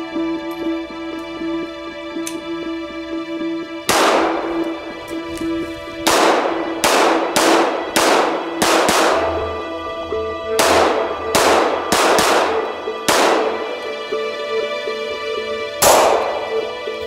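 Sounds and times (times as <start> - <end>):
pistol shots with ringing echo: 3.9 - 4.7, 6.0 - 9.5, 10.6 - 13.8, 15.8 - 16.7.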